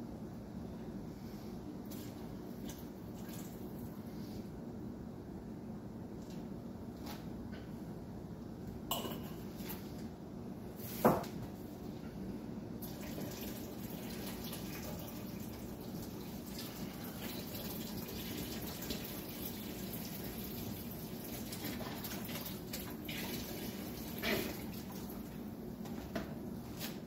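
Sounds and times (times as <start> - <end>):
liquid pouring into a pot: 12.8 - 25.2.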